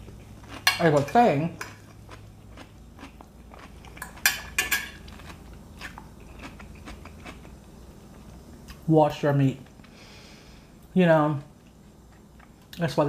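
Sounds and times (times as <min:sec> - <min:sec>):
chewing crunchy salad: 0:00.0 - 0:08.9
fork clinking and scraping on plate: 0:04.0 - 0:05.1.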